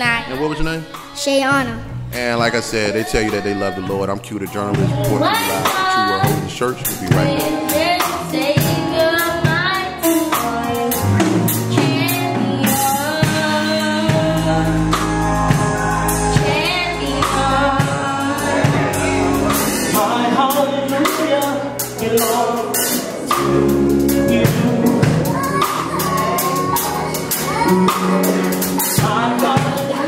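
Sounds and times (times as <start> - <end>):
bass: 0.0 - 30.0
drum beat: 0.8 - 8.9
girl singing into a microphone: 4.7 - 6.4, 7.0 - 19.3, 25.0 - 30.0.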